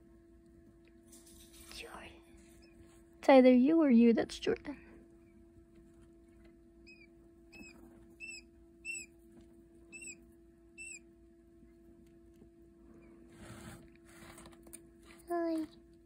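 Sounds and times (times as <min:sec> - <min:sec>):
faint hum: 0:00.0 - 0:16.0
chicks peeping: 0:06.4 - 0:09.2, 0:09.9 - 0:11.0.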